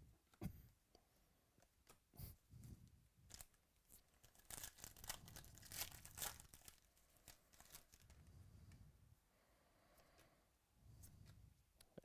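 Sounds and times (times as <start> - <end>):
foil wrapper tearing and crinkling: 3.3 - 8.2.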